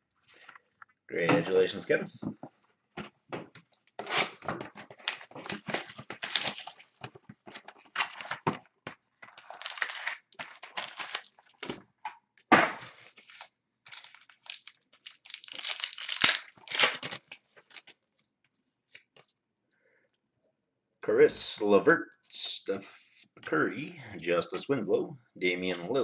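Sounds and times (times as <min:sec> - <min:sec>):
cardboard rustling and crinkling: 0:01.9 - 0:11.8, 0:12.8 - 0:18.0.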